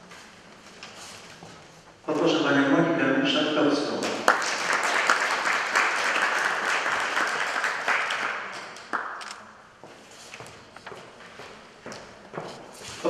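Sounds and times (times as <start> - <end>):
audience applauding: 4.0 - 9.2.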